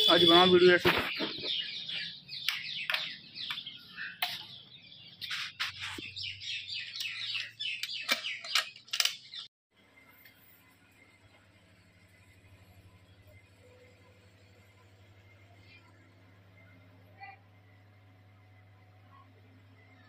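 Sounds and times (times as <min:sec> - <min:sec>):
small birds chirping: 0:00.0 - 0:09.5.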